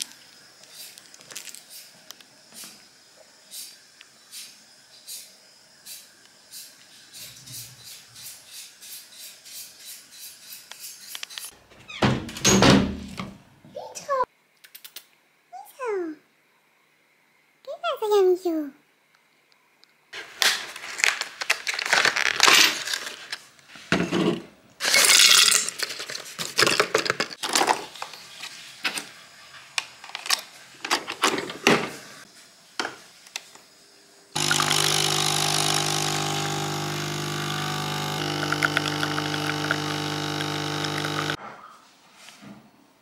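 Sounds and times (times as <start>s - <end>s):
coffee pouring: 34.4s - 41.4s
espresso machine pump humming: 34.4s - 41.4s.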